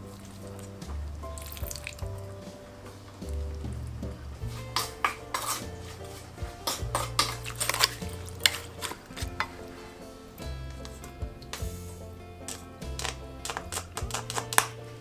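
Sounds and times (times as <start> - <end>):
soft background music: 0.0 - 15.0
spoon scraping metal bowl: 4.8 - 10.2.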